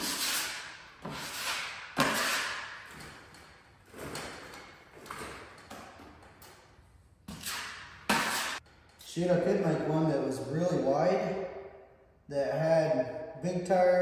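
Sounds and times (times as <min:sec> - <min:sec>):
sanding block scraping drywall: 0:00.0 - 0:03.1, 0:07.3 - 0:08.6.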